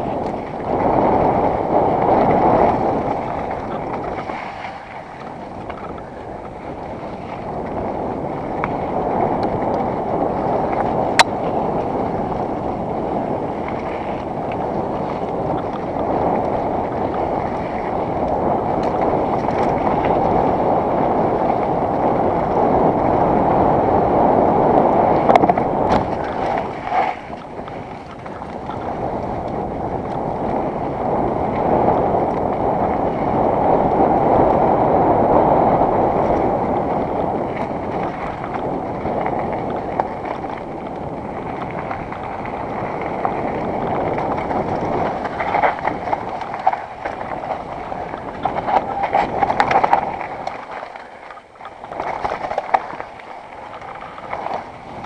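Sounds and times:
wind on microphone: 0.0s - 55.0s
tyres rolling over dirt and stones: 37.4s - 55.0s.

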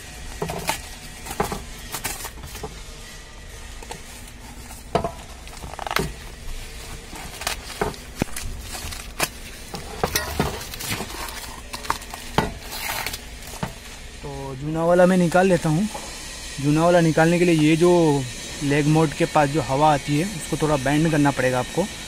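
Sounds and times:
cardboard and tape tearing: 0.3s - 2.7s, 3.8s - 14.1s.

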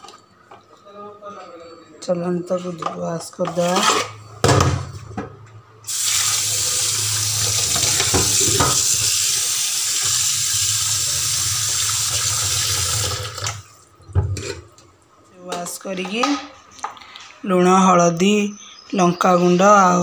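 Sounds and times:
tap water splashing into pot: 7.4s - 9.2s.

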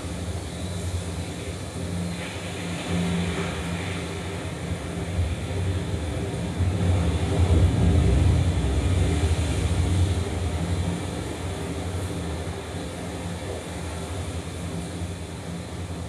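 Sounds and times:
low rumbling ambient drone: 0.0s - 16.0s.

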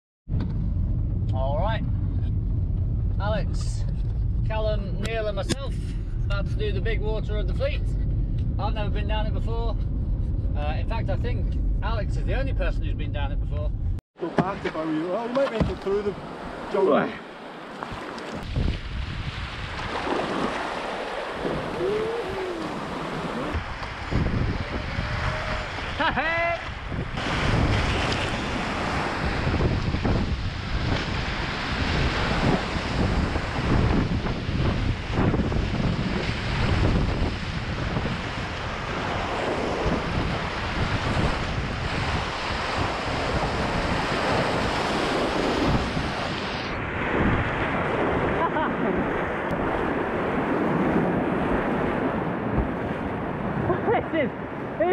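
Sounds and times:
wind buffeting microphone: 0.3s - 14.8s, 17.9s - 54.9s
whitewater rushing and splashing: 14.2s - 46.8s
short wavering cry: 21.6s - 23.5s.

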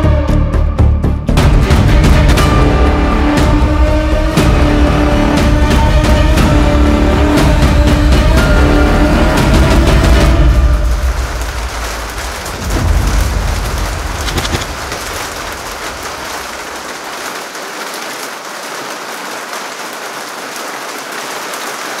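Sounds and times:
thunder rumbling: 1.4s - 17.1s
steady rain: 1.4s - 22.0s.

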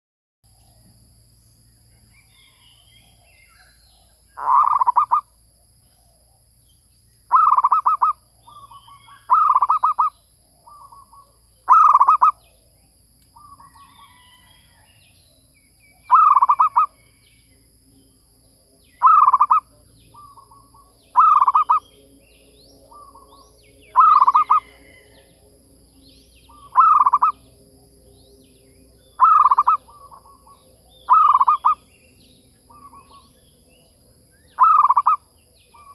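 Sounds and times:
dove cooing: 4.4s - 5.2s, 7.3s - 12.4s, 16.1s - 17.0s, 19.0s - 21.8s, 24.0s - 25.0s, 26.5s - 27.4s, 29.2s - 31.8s, 34.6s - 35.9s.

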